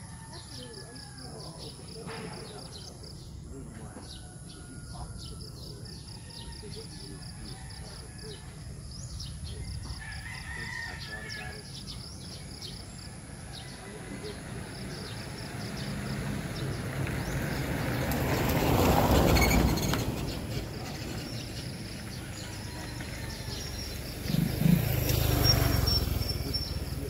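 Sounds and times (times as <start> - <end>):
motor vehicle passing by: 0.0 - 27.0
engine sound: 15.8 - 27.0.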